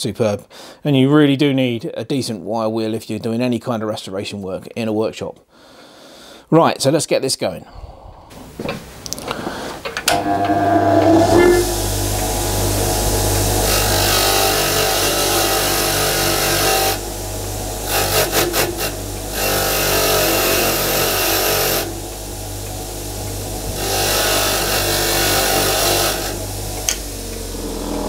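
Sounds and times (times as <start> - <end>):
bench grinder motor humming: 10.1 - 28.0
wire wheel scrubbing metal: 10.1 - 28.0.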